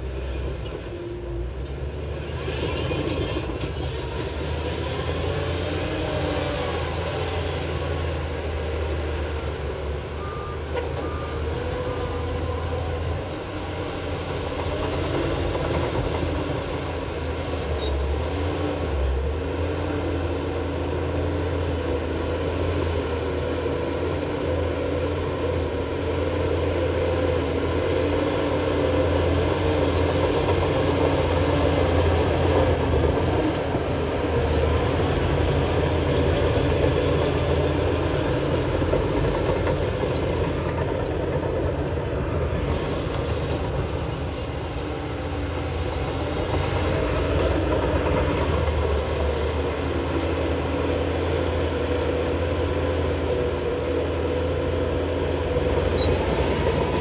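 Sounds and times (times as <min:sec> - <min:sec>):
bulldozer diesel engine: 0:00.0 - 0:57.0
reversing alarm beeps: 0:10.0 - 0:11.6.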